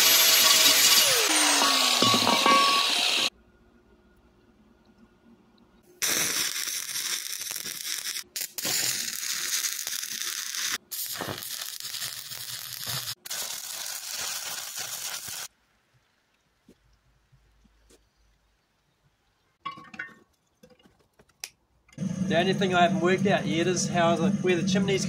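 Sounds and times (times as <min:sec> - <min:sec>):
arc welder crackling: 0:06.0 - 0:15.5.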